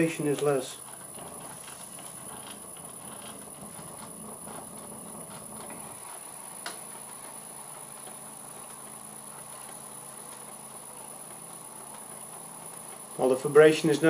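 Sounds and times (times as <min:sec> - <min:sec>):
lathe motor humming and whirring: 0:00.0 - 0:14.0.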